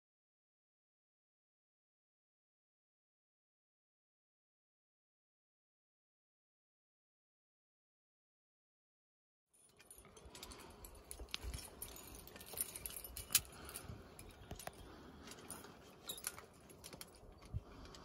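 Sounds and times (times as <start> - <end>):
metallic clinking of carabiners: 9.6 - 18.0.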